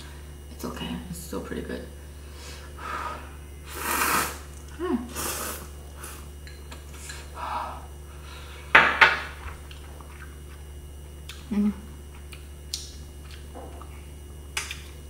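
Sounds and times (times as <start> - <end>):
person slurping noodles: 3.7 - 4.4, 5.1 - 6.2.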